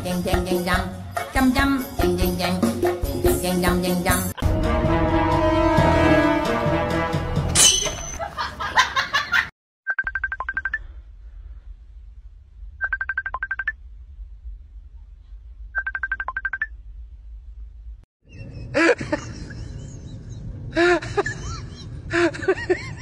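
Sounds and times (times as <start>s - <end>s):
music: 0.0s - 7.6s
low hum: 10.8s - 23.0s.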